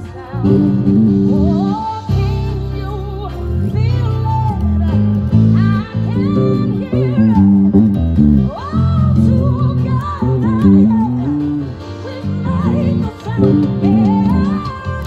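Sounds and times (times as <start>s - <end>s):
electric bass line: 0.0s - 15.0s
gospel music: 0.0s - 15.0s
person singing: 0.0s - 15.0s.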